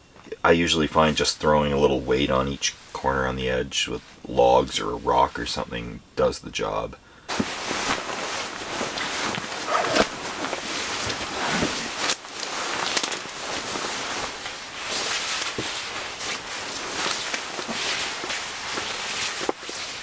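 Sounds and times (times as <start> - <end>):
sleeping bag rustling: 7.3 - 20.0.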